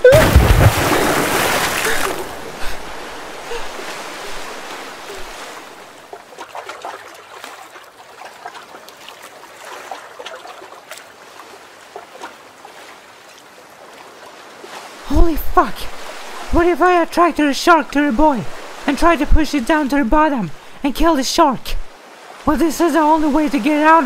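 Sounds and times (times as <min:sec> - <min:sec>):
heavy splash into water: 0:00.0 - 0:03.6
water lapping and trickling: 0:00.0 - 0:20.8, 0:21.8 - 0:24.0.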